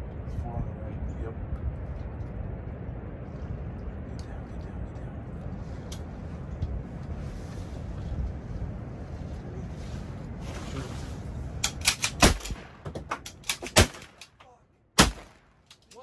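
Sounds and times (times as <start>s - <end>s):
wind rumbling on microphone: 0.0s - 14.1s
sharp clicks and knocks: 11.6s - 14.4s.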